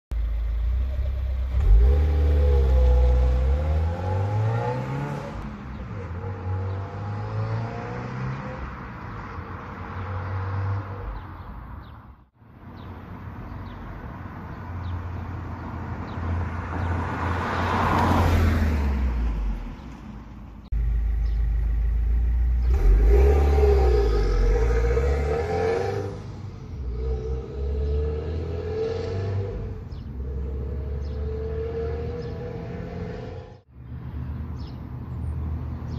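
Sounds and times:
car accelerating through gears: 26.8s - 33.6s.

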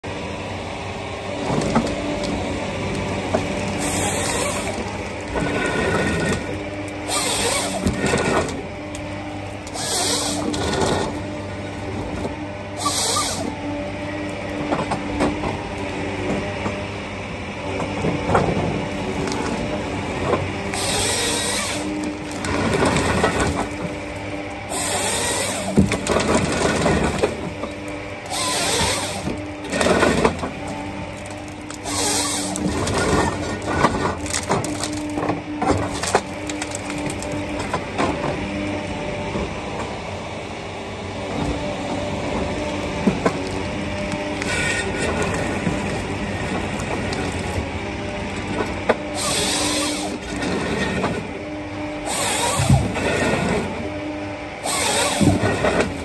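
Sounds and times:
diesel and hydraulic hum: 0.0s - 56.0s
saw hissing bursts: 7.1s - 7.8s, 9.7s - 10.5s, 12.8s - 13.5s, 20.8s - 21.9s, 24.7s - 25.7s, 28.3s - 29.2s, 31.8s - 32.6s, 49.2s - 50.2s, 52.0s - 52.8s, 54.6s - 55.3s
branches snapping: 20.6s - 37.8s, 42.6s - 47.6s.

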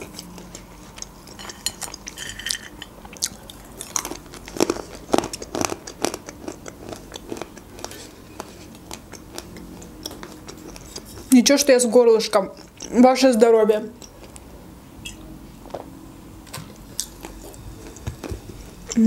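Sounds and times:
chewing with wet mouth clicks: 0.0s - 2.2s, 3.0s - 11.3s, 12.5s - 13.0s, 14.0s - 15.8s, 16.9s - 19.0s.

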